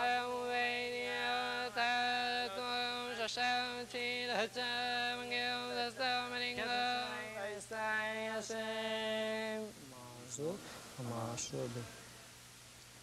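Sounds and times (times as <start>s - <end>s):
man chanting in monotone: 0.0s - 12.0s.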